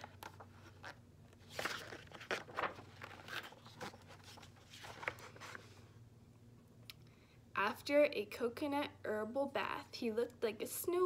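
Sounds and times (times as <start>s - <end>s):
book pages turning: 0.0s - 5.8s.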